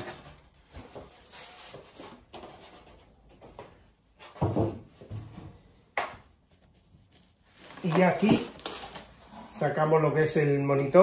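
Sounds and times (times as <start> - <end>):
polystyrene foam creaking: 6.7 - 10.0.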